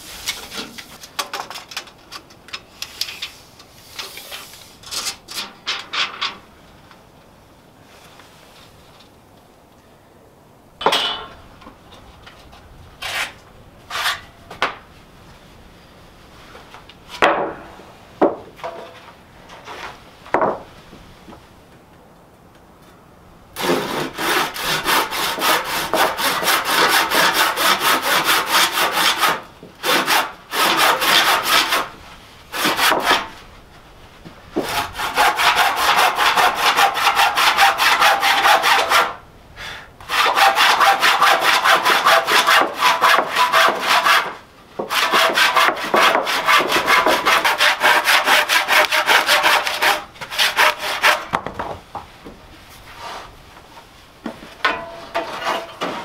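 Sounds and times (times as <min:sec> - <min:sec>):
hand saw cutting wood: 0:13.0 - 0:14.3, 0:23.6 - 0:33.4, 0:34.6 - 0:39.2, 0:40.0 - 0:51.3.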